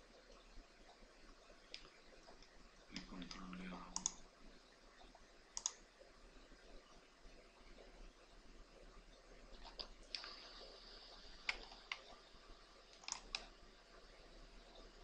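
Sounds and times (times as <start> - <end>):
computer mouse clicks: 1.7 - 4.2, 5.6 - 5.8, 11.4 - 12.2, 12.9 - 13.5.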